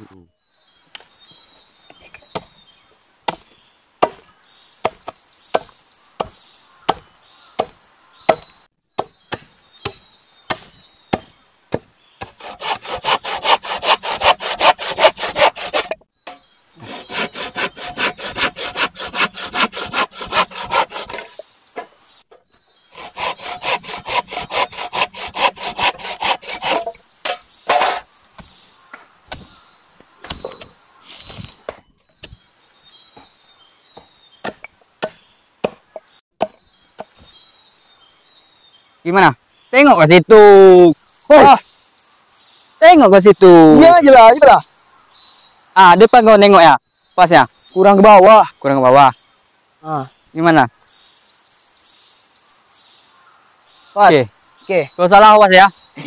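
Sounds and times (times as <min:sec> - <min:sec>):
hand saw cutting wood: 0:12.2 - 0:16.0, 0:16.8 - 0:21.5, 0:22.9 - 0:28.1
sharp knocks on wood: 0:26.8 - 0:29.6, 0:30.2 - 0:30.8.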